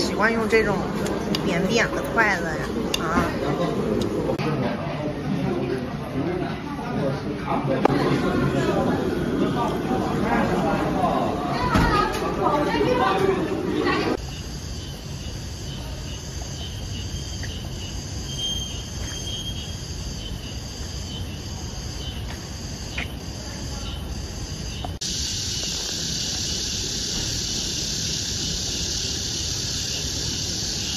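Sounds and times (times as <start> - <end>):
insects trilling: 13.9 - 30.9.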